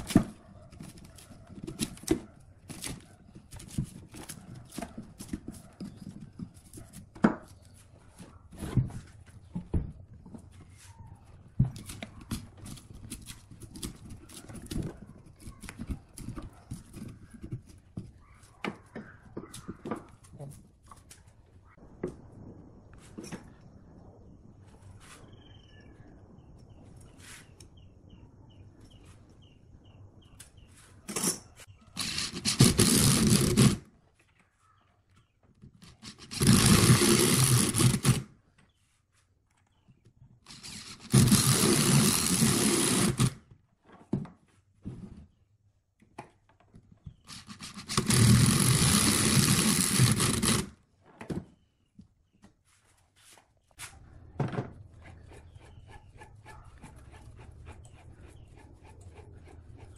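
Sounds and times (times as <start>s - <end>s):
electric drill boring into log: 36.1s - 38.2s, 40.5s - 43.4s, 47.3s - 50.7s.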